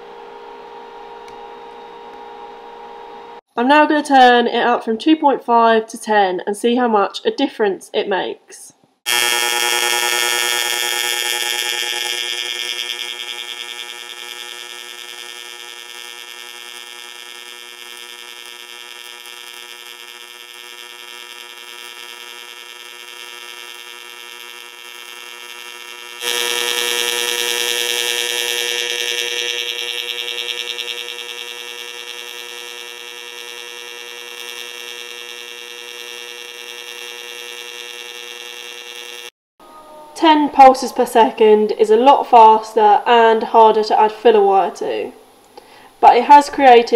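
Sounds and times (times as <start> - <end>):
welding arc buzzing: 9.1 - 39.4.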